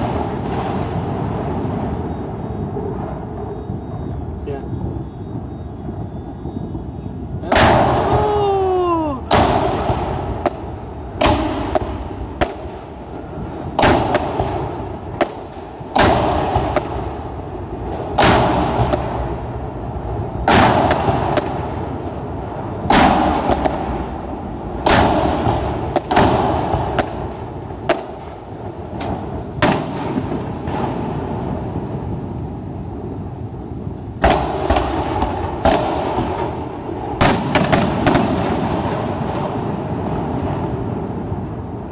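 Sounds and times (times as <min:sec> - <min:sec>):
fireworks booming: 0:00.0 - 0:41.9
falling whistling tone: 0:01.9 - 0:07.2.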